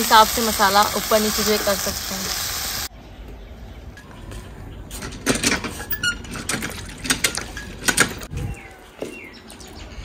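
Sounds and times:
bird chirping: 8.3 - 10.0.

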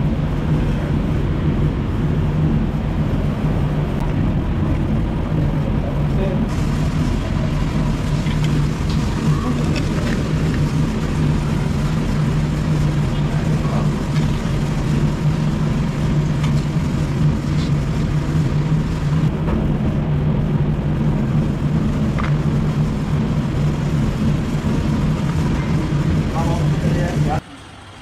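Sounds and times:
loud low mechanical drone: 0.0 - 28.0.

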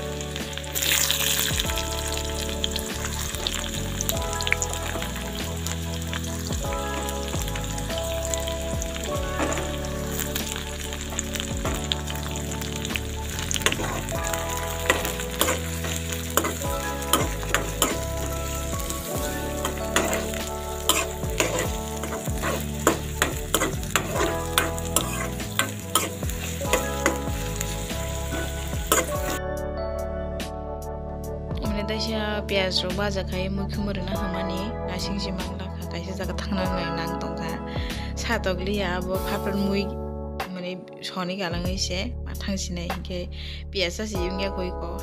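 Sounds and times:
onions sizzling in hot oil: 0.0 - 29.4
metal spoon scraping a pan: 13.5 - 29.4.

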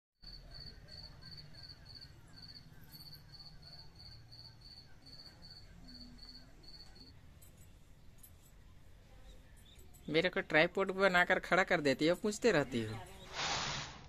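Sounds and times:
faint cricket chirping: 0.2 - 8.3.

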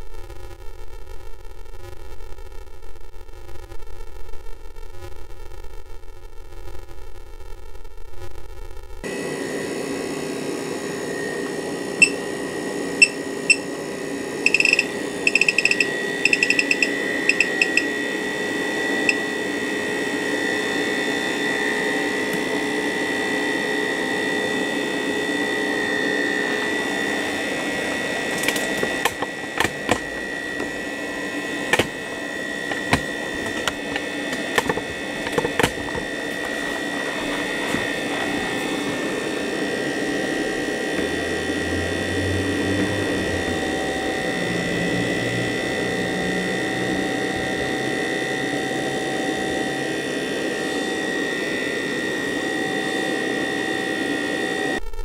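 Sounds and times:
fan motor high-pitched whine: 9.0 - 54.8
short electronic beeps: 14.5 - 17.9.

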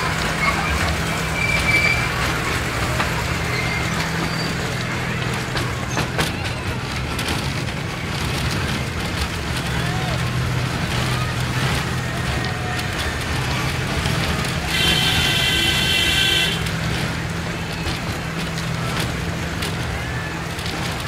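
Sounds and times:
low engine hum: 0.0 - 21.0
wheel and track rumble: 0.0 - 21.0.

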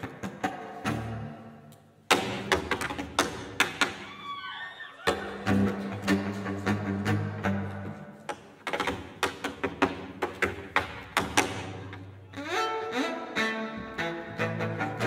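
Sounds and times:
cello playing sustained notes: 5.3 - 8.3, 11.8 - 15.0
tap shoes on wooden stage: 8.2 - 12.1.

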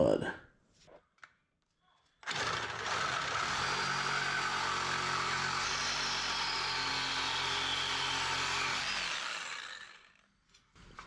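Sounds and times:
reciprocating saw cutting steel: 2.3 - 10.2.

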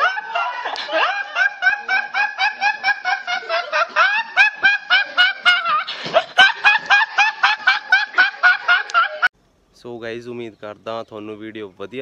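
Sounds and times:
young man laughing: 0.0 - 9.3.

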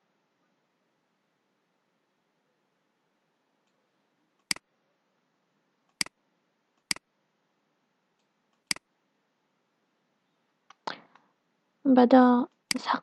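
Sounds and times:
computer mouse clicking: 4.4 - 4.6, 5.9 - 6.2, 6.8 - 7.0, 8.2 - 8.9, 12.5 - 12.9.

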